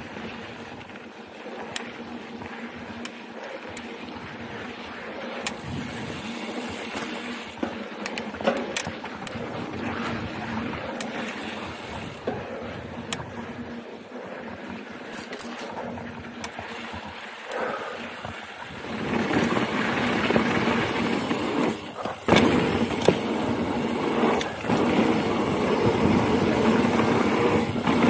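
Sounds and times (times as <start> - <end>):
bike clicks and rattles: 0.0 - 28.0
bike tyres rolling over dirt: 0.0 - 28.0.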